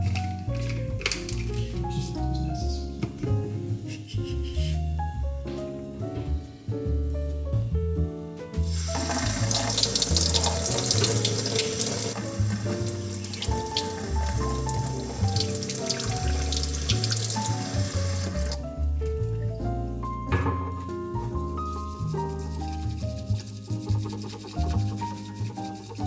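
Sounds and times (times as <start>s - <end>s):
background music: 0.0s - 26.0s
tap water running into sink: 8.7s - 18.6s.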